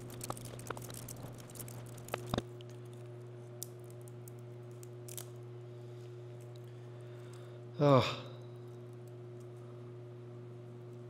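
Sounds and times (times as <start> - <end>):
faint clicks and cracks: 0.0 - 5.4, 6.3 - 7.5, 8.6 - 9.7
steady low hum: 0.0 - 11.0.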